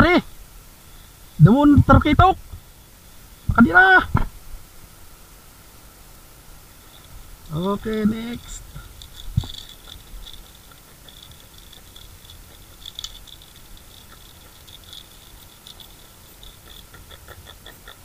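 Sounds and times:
scratching and rattling of fish and lure: 6.8 - 18.0.

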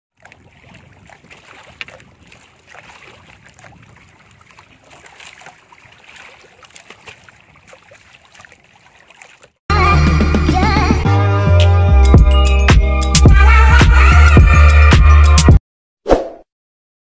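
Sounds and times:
paddle strokes splashing water: 0.1 - 9.6.

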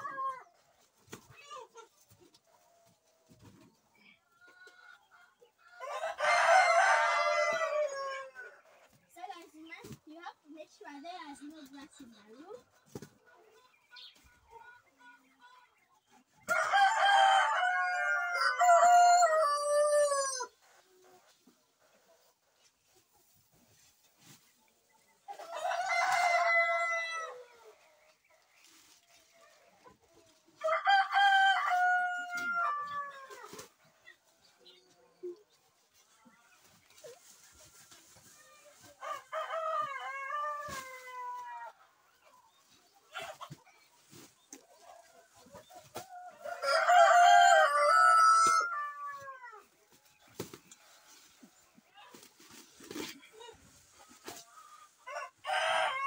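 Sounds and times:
rooster crowing: 5.8 - 8.3, 16.5 - 20.5, 30.6 - 33.1, 46.4 - 49.4, 55.1 - 56.0.

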